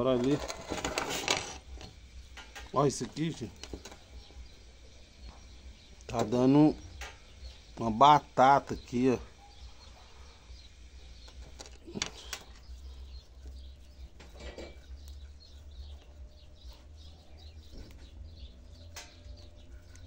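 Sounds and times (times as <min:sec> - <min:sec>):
birds chirping: 0:00.0 - 0:20.0
clicks and knocks of hands working: 0:11.2 - 0:12.7.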